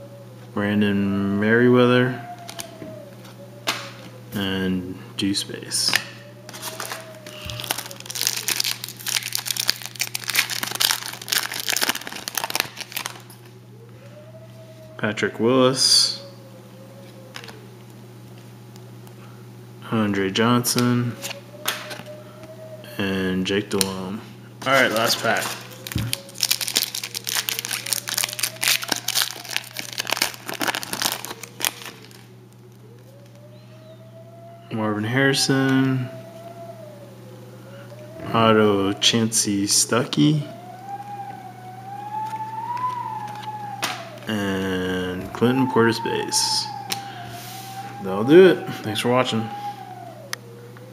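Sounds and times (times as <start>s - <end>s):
foil wrapper crinkling and tearing: 6.5s - 13.5s, 24.6s - 32.3s.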